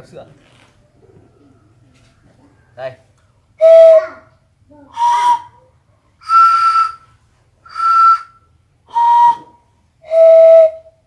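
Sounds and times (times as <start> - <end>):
bamboo flute puffs: 7.7 - 10.8.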